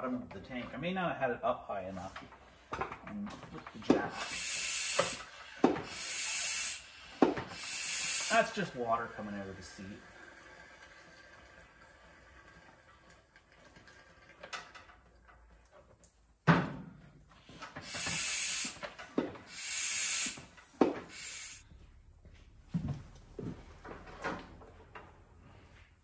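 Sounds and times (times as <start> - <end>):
hissing blasts: 4.1 - 9.3, 17.8 - 18.8, 19.5 - 21.6
knocks and clunks on metal: 16.4 - 17.2.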